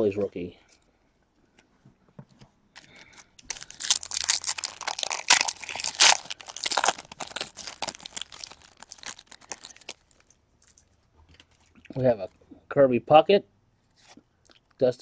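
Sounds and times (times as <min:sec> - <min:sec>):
card pack wrapper tearing and crinkling: 0:03.4 - 0:10.8.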